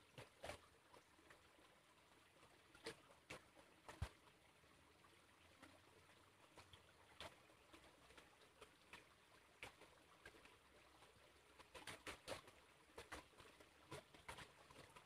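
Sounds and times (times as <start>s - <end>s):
faint clicks and ticks: 2.4s - 4.4s, 5.4s - 15.0s.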